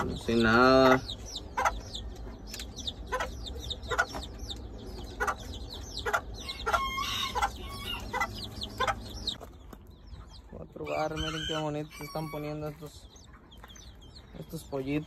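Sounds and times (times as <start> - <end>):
chicks peeping: 0.0 - 15.0
hen clucking: 0.0 - 15.0
drawn-out chicken call: 6.0 - 9.4, 10.9 - 12.7.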